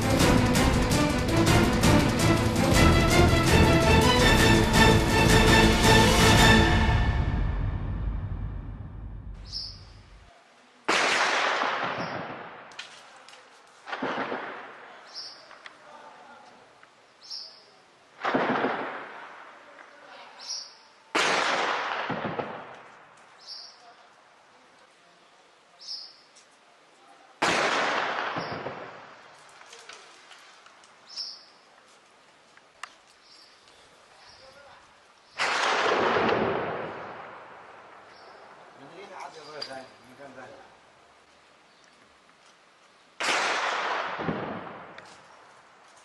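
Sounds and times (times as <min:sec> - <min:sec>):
echoing rumble: 0:00.0 - 0:10.2
explosive blasts: 0:00.0 - 0:10.2, 0:13.9 - 0:14.8, 0:18.2 - 0:19.4, 0:21.2 - 0:22.8, 0:27.4 - 0:29.2, 0:35.4 - 0:37.8, 0:43.2 - 0:45.0
faint sharp cracks: 0:10.9 - 0:15.8, 0:21.2 - 0:23.4, 0:35.2 - 0:39.8, 0:43.2 - 0:46.0.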